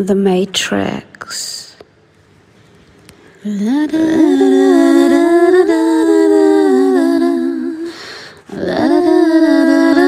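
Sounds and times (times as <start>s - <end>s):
wordless humming in harmony: 3.2s - 10.0s.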